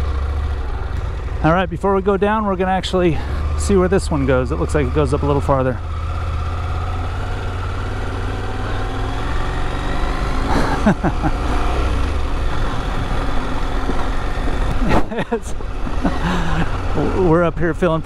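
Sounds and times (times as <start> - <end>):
motorcycle engine running: 0.0 - 18.0.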